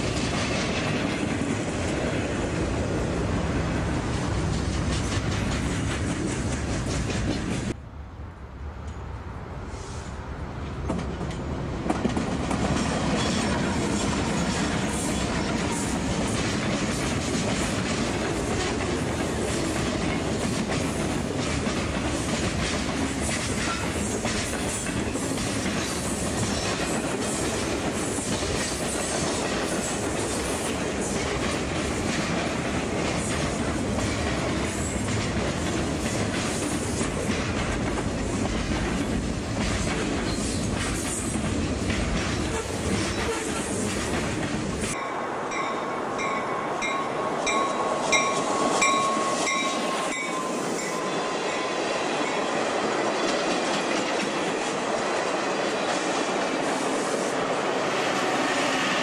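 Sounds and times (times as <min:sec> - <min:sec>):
train wheels clicking: 0:00.0 - 0:02.4, 0:03.6 - 0:07.8, 0:10.6 - 0:45.6, 0:46.2 - 0:59.0
freight train wheels rumbling on rail: 0:00.0 - 0:07.8, 0:08.7 - 0:59.0.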